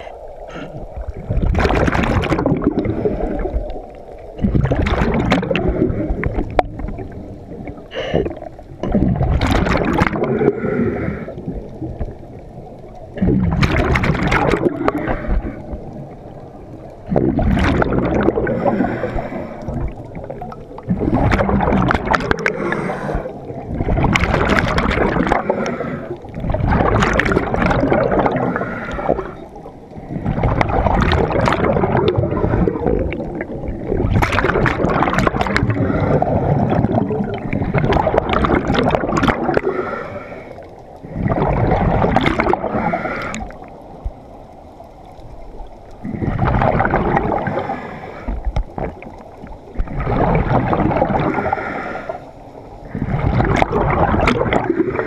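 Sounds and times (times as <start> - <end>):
underwater regulator breathing bubbles: 0.0 - 3.8, 7.8 - 11.5, 13.2 - 15.8, 17.1 - 43.7, 52.8 - 55.0.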